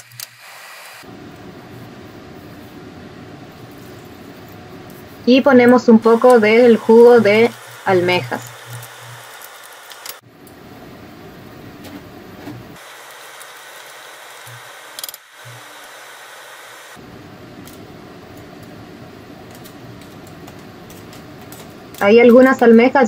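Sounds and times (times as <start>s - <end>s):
seafood sizzling in a pan: 6.0s - 10.2s, 12.8s - 17.0s.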